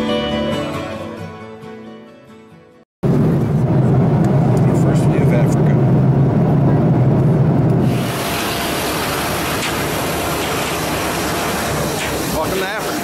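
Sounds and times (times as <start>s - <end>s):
low engine hum: 3.0s - 12.4s
wind and road noise: 3.0s - 13.0s.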